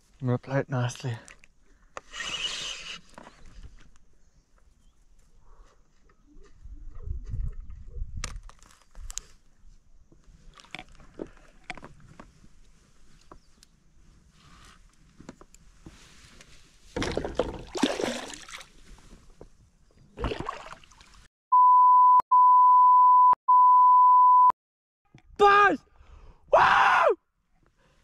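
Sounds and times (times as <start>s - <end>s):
censor bleep: 21.5s - 24.6s.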